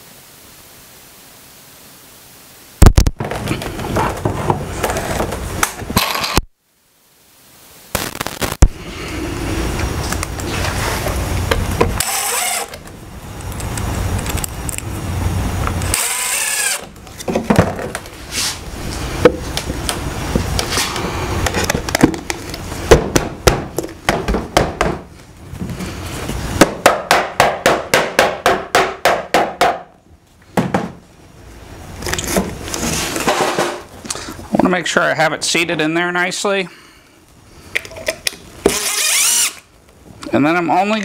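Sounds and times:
cordless drill driving screw: 0:12.0 - 0:12.8, 0:15.9 - 0:16.9, 0:38.7 - 0:39.7
mallet knocking wooden boards: 0:22.9 - 0:25.1, 0:26.6 - 0:29.9, 0:30.6 - 0:31.0.

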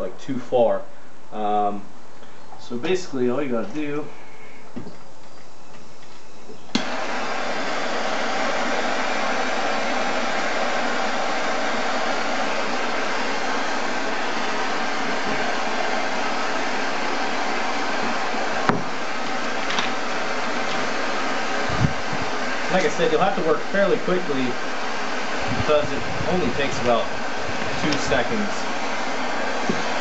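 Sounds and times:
torch flame hissing: 0:06.6 - 0:30.0
torch ignition click: 0:06.7 - 0:07.0, 0:25.6 - 0:28.4.

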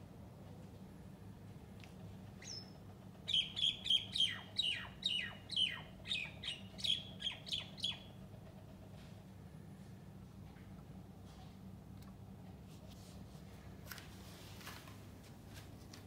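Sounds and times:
myna bird calling: 0:02.4 - 0:08.2.

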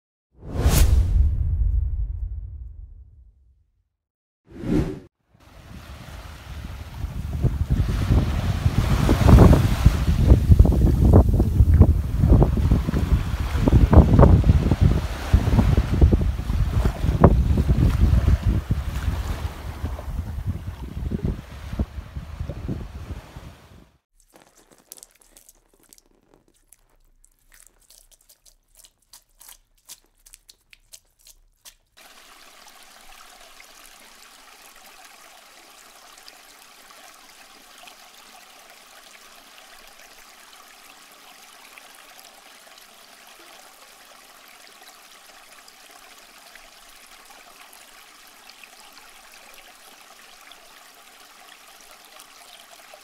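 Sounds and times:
faint scattered crackles: 0:24.1 - 0:32.2
aquarium water trickling: 0:24.1 - 0:53.0.

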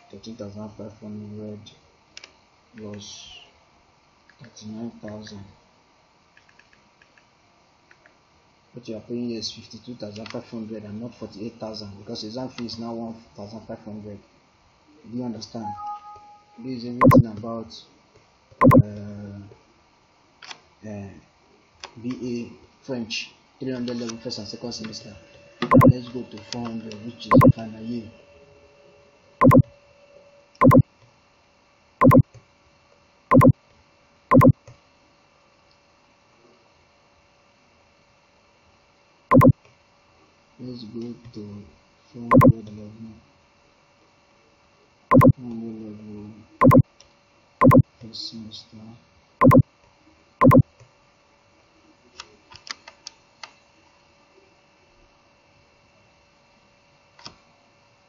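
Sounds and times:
mouse button clicks: 0:34.3 - 0:34.5, 0:45.1 - 0:45.3.

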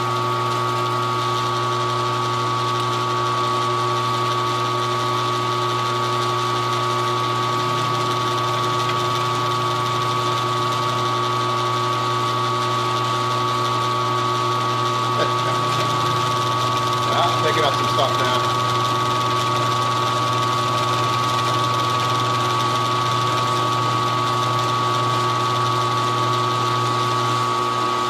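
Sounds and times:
milling machine humming and whining: 0:00.0 - 0:28.0.

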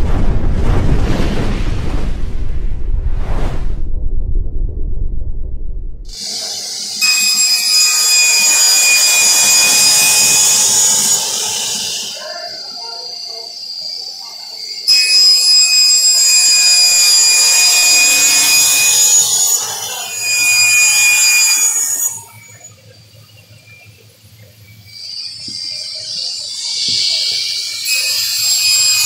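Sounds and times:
table saw cutting plastic board: 0:06.1 - 0:12.2, 0:14.8 - 0:22.6, 0:25.5 - 0:29.0.

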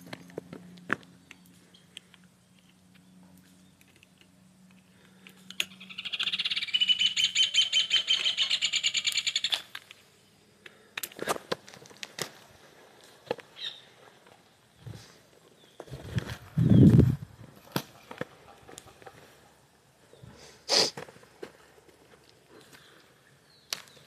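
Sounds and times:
bird rapid trill: 0:05.7 - 0:09.6.

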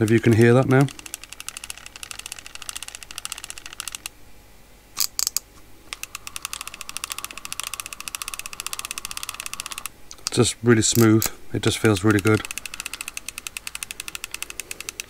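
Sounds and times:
fishing reel ticking: 0:00.0 - 0:04.1, 0:05.9 - 0:09.9, 0:11.9 - 0:15.0
reel rattle: 0:00.0 - 0:04.1, 0:06.0 - 0:09.9, 0:11.9 - 0:15.0.

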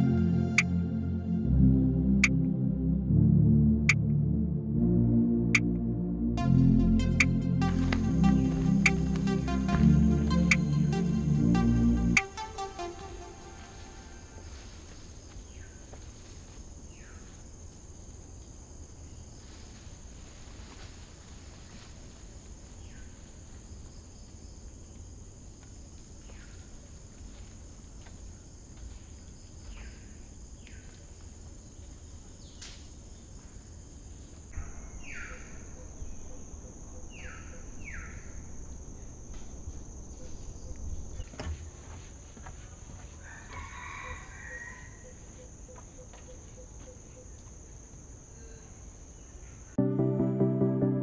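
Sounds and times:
high insect buzz: 0:06.8 - 0:20.1.

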